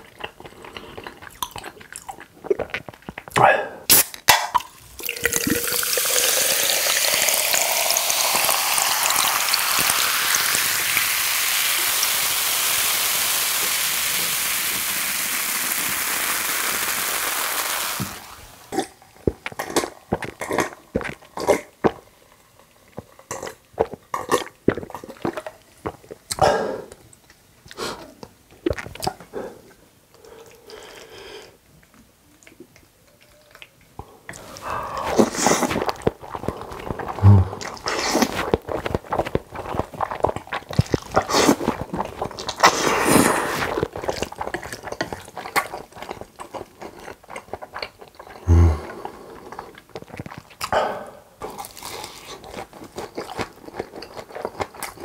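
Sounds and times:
soda fizzing as poured: 0:04.8 - 0:18.7.

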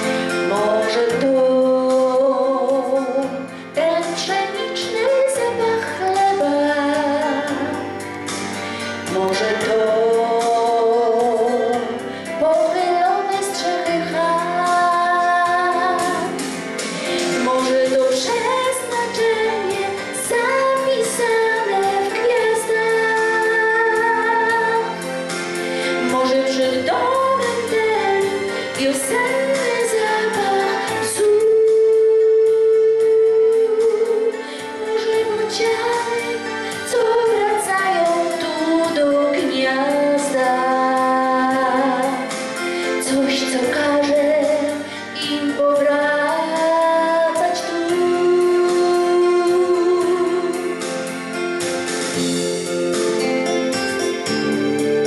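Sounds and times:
woman singing: 0:00.0 - 0:08.1, 0:09.0 - 0:51.2
musical accompaniment: 0:00.0 - 0:55.0.

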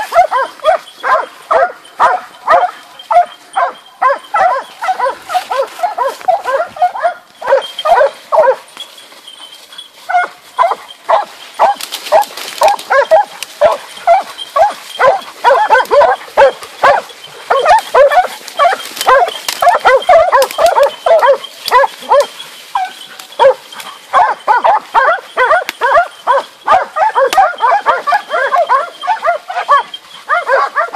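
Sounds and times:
dogs barking rapidly: 0:00.0 - 0:30.9.

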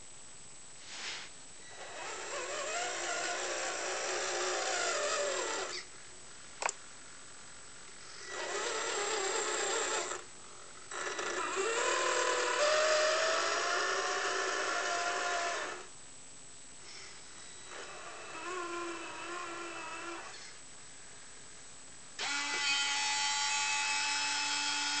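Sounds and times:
electric motor and gearbox whining: 0:01.8 - 0:05.9, 0:08.2 - 0:10.2, 0:10.9 - 0:15.9, 0:22.2 - 0:25.0.

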